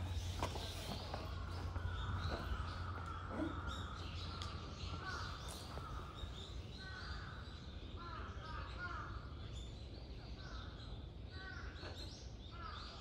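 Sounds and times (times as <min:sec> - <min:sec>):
steady low hum: 0:00.0 - 0:08.1
birds calling: 0:00.0 - 0:13.0.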